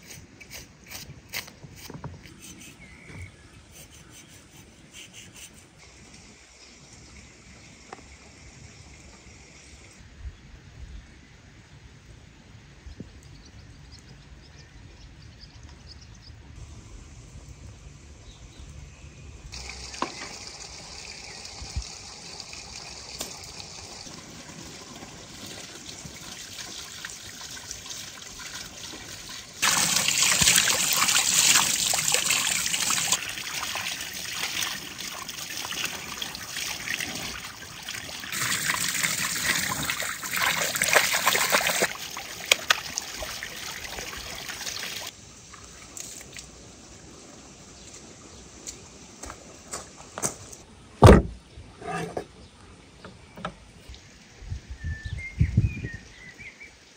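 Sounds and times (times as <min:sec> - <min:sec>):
outdoor background: 0:00.0 - 0:56.9
water splashing over meat: 0:23.1 - 0:45.1.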